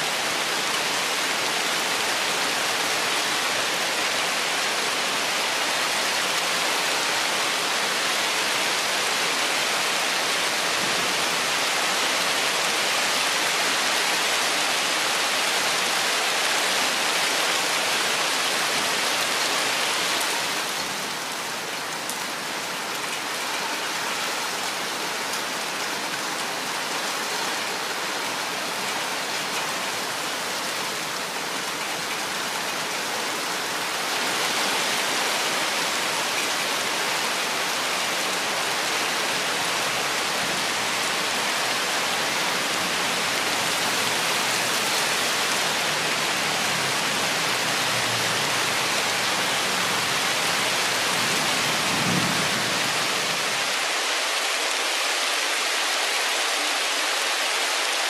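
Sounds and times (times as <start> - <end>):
rain falling through forest: 0.0 - 58.0.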